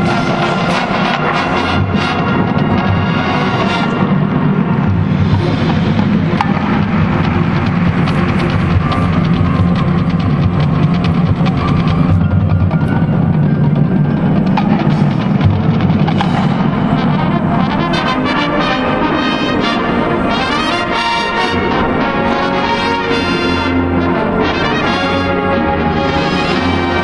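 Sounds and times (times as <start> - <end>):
brass playing chords: 0.0 - 12.2, 16.1 - 27.0
heavy drum hits: 0.0 - 18.4.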